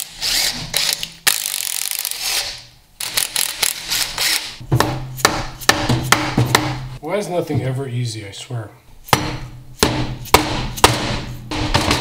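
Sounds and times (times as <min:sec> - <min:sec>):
sharp metallic knocks: 0:04.6 - 0:07.0, 0:09.1 - 0:12.0.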